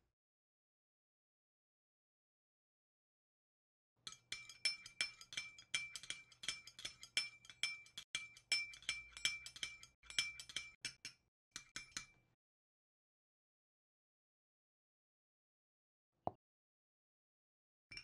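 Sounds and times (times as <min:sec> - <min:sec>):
palette knife clinking glass bowl: 0:04.1 - 0:12.2.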